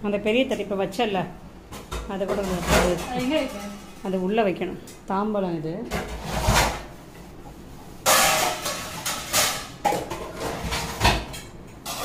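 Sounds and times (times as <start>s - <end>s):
kitchenware knocking and clattering: 1.7s - 4.2s, 8.0s - 12.0s.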